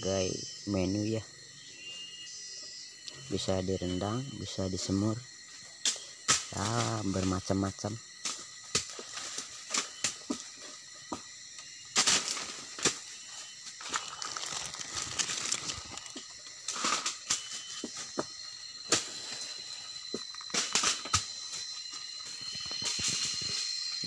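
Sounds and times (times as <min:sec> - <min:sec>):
dry leaves rustling and crackling: 0:13.7 - 0:17.3
pods and twigs snapping: 0:13.7 - 0:19.2, 0:20.0 - 0:23.5.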